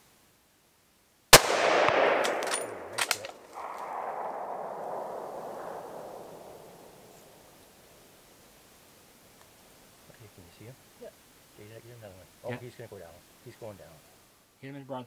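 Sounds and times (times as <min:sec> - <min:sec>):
rifle shot: 0:01.3 - 0:07.6
rolling echo: 0:01.4 - 0:08.1
metallic clicks: 0:01.9 - 0:04.2.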